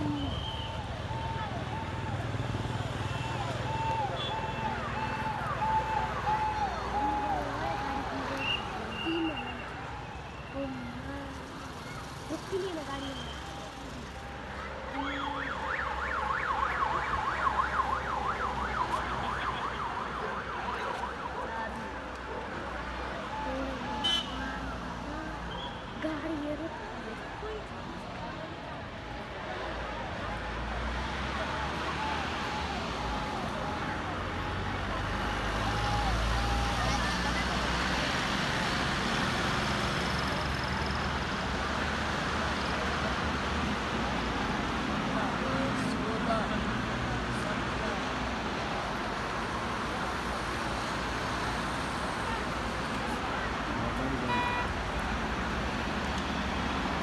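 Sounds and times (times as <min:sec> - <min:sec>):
vehicle siren wailing: 0:00.0 - 0:09.5, 0:14.9 - 0:22.0
traffic noise: 0:00.0 - 0:57.0.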